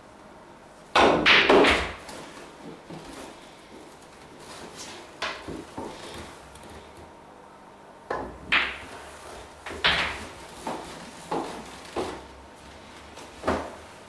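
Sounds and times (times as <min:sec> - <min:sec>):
cue striking ball: 0:01.0 - 0:02.0, 0:08.1 - 0:09.0
pool balls clacking: 0:01.0 - 0:03.1, 0:08.1 - 0:12.3.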